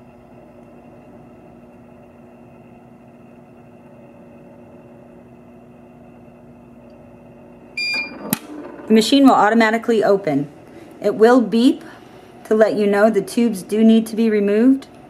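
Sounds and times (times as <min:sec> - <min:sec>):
centrifuge humming: 0:06.6 - 0:13.6.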